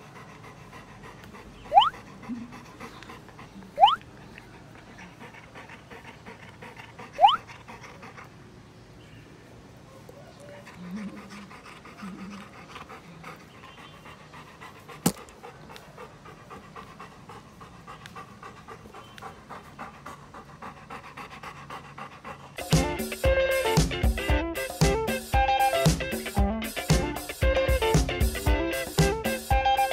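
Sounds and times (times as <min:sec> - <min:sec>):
dog panting: 0:00.0 - 0:09.1, 0:09.7 - 0:29.9
sharp click: 0:15.0 - 0:15.3.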